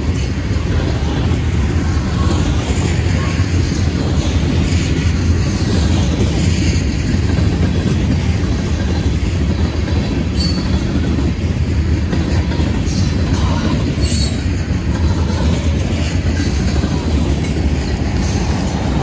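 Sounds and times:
freight train rumbling past: 0.0s - 19.0s
high wheel squeal: 10.3s - 10.9s.

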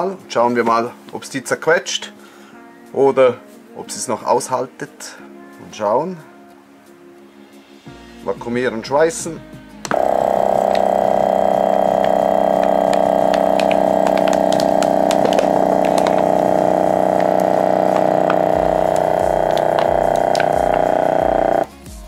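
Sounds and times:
vacuum sealer pump humming: 9.9s - 21.7s
can crumpling crackles: 10.6s - 21.6s.

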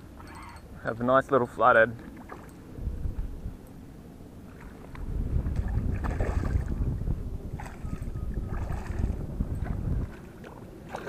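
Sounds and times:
wind rumble on microphone: 0.0s - 11.0s
fish splashing in shallow water: 2.1s - 2.7s, 4.4s - 11.0s.

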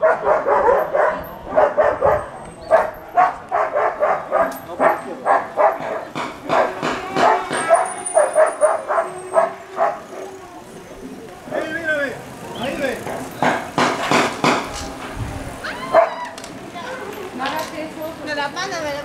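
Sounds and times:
dog barking: 0.0s - 10.4s, 15.9s - 16.2s.

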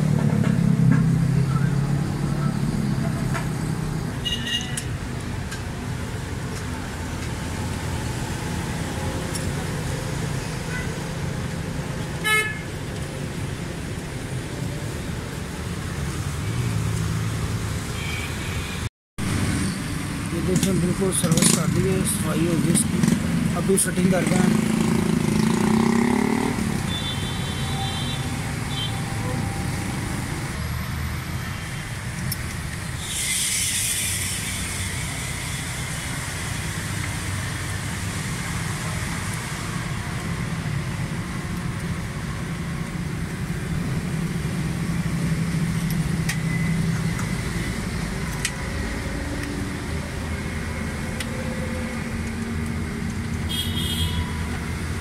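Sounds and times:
motor vehicles rumbling: 0.0s - 55.0s
brief hiss: 33.0s - 35.0s.

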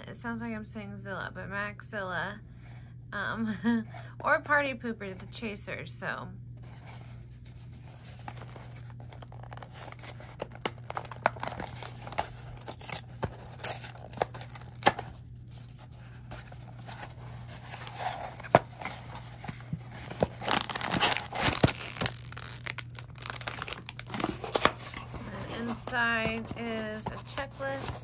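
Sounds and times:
packaging tearing and crinkling: 8.1s - 28.0s.

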